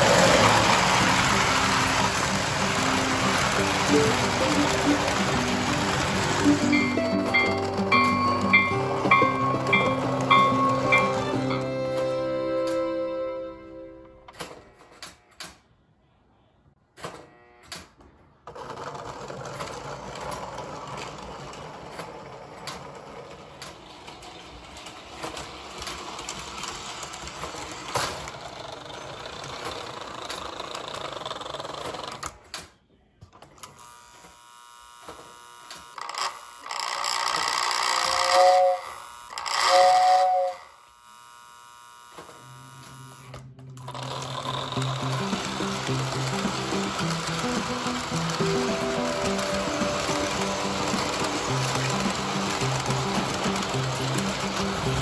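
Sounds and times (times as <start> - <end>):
toy train rattling on track: 0.0 - 13.0, 18.4 - 32.5, 35.3 - 40.9, 43.8 - 55.0
two-tone train whistle: 2.6 - 14.3, 37.5 - 40.8.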